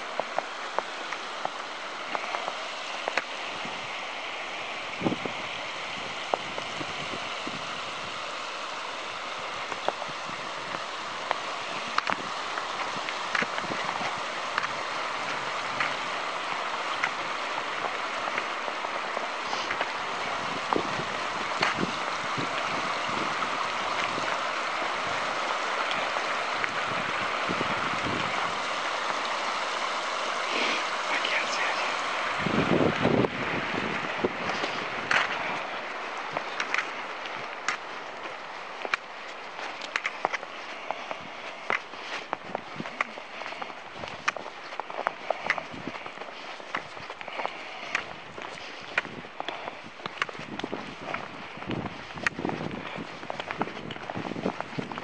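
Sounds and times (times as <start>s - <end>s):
river flowing over rocks: 0.0s - 55.0s.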